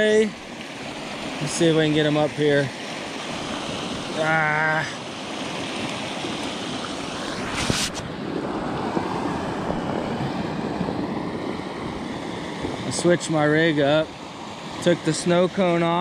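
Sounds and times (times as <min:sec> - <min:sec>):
river running over rocks: 0:00.0 - 0:16.0
brief swish: 0:07.3 - 0:08.1.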